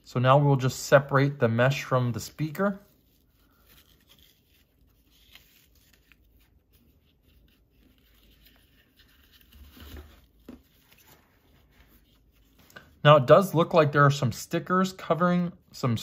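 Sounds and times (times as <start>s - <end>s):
fabric rustling and scratching: 2.9s - 12.6s.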